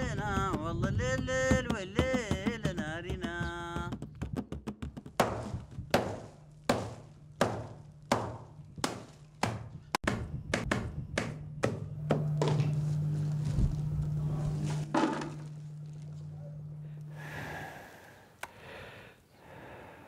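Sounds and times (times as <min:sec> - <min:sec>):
low steady hum: 0:05.2 - 0:20.0.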